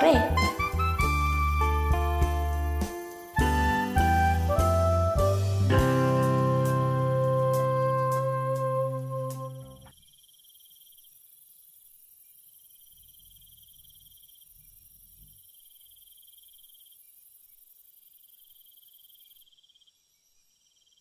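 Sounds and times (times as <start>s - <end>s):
crickets chirping: 0.0s - 21.0s
high insect hiss: 0.0s - 21.0s.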